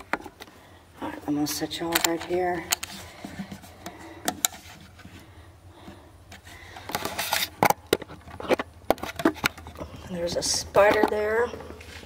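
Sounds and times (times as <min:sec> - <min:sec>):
camera handling clicks and knocks: 0:01.9 - 0:03.0.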